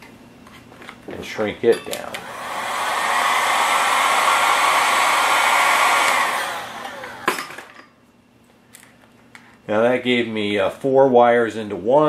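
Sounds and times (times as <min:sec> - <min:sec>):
heat gun blowing with whine: 0:02.1 - 0:07.7.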